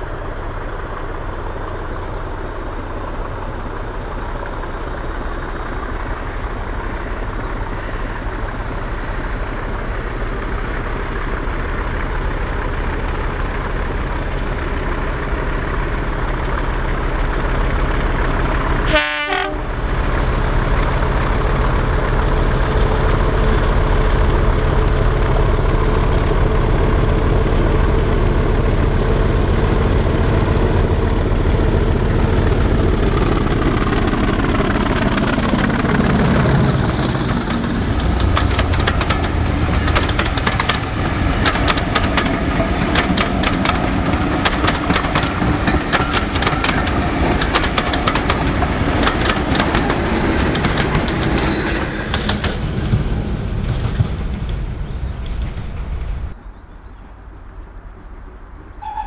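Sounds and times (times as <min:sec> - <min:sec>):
diesel locomotive passing: 0:00.0 - 0:59.0
second diesel locomotive running: 0:00.0 - 0:59.0
train wheels clattering over rail joints: 0:32.1 - 0:56.4.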